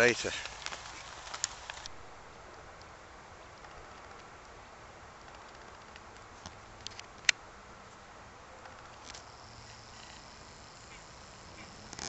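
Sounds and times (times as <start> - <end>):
faint steady hiss: 0.0 - 12.0.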